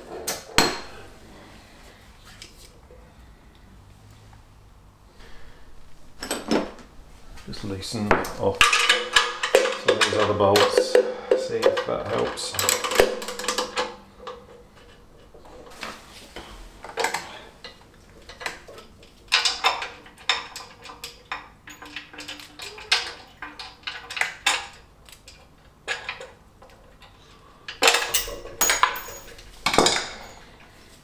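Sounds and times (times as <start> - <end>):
metal tools clinking on bolts: 8.5 - 14.9, 18.3 - 26.3, 26.9 - 30.7.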